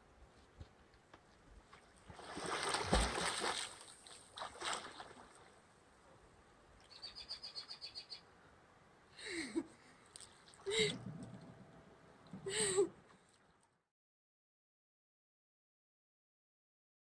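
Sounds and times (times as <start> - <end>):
water splashing: 2.0 - 5.6.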